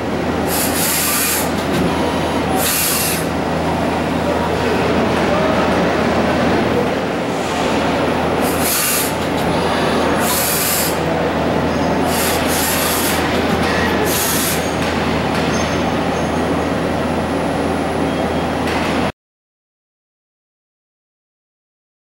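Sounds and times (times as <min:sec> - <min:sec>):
lathe machining: 0:00.0 - 0:19.1
short hissing bursts: 0:00.5 - 0:01.5, 0:08.4 - 0:09.2.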